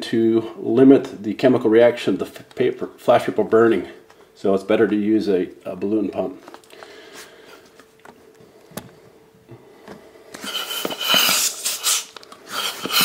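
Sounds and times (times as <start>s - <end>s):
air rushing from balloon pump: 10.4s - 13.0s.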